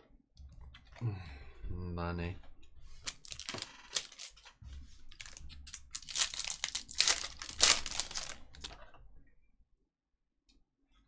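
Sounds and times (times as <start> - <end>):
foil wrapper tearing and crinkling: 3.0 - 4.5, 5.1 - 8.8.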